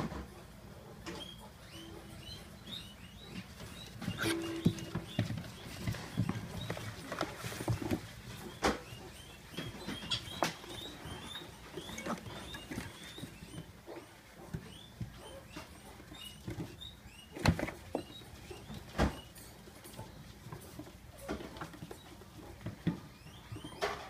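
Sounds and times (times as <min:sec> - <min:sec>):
piglets squeaking: 0:01.0 - 0:20.3, 0:21.2 - 0:24.0.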